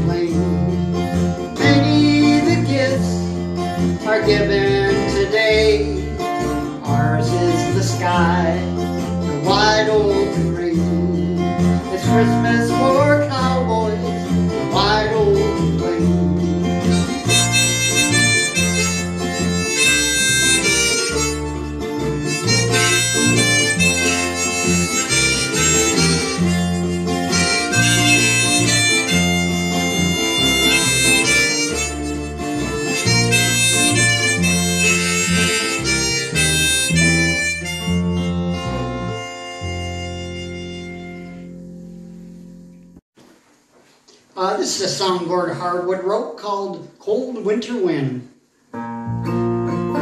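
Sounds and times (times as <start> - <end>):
strummed acoustic guitar: 0.0 - 42.8, 48.7 - 50.0
electric bass line: 0.0 - 43.0
harmonica solo: 16.2 - 42.4.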